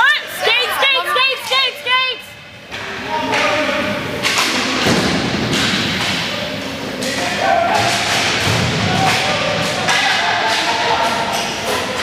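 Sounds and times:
players shouting: 0.0 - 12.0
hockey sticks and puck clacking: 2.7 - 12.0.

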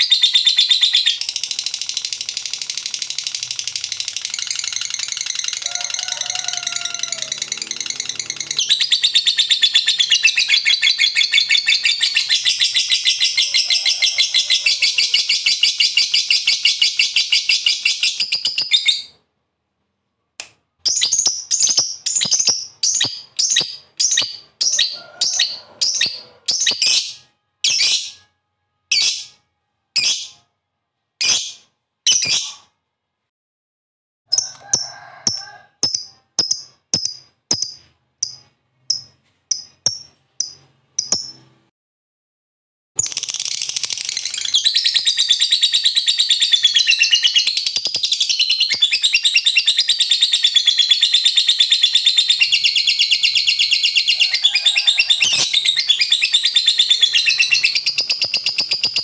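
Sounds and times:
sharp bird chirps: 0.0 - 5.6, 6.8 - 19.2, 20.8 - 28.3, 31.2 - 32.7, 35.8 - 41.5, 43.0 - 59.0
lovebird trilling: 43.0 - 59.0.

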